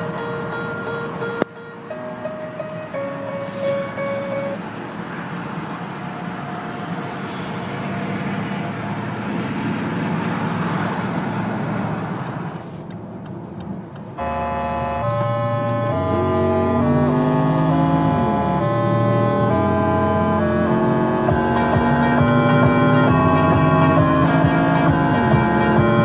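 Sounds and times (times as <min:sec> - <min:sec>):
music: 0:00.0 - 0:04.6, 0:14.4 - 0:26.0
car engine and road noise: 0:00.0 - 0:26.0.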